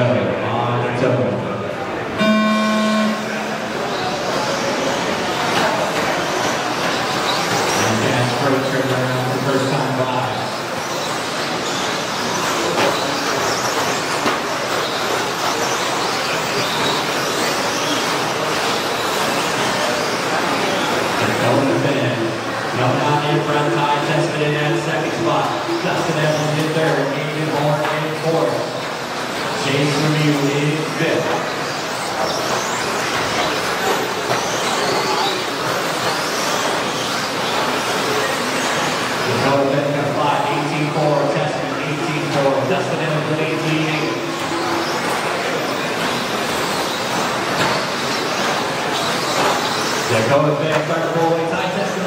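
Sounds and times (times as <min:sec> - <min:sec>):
electric motors whining: 0:02.2 - 0:52.0
rc trucks rushing on dirt: 0:03.7 - 0:52.0.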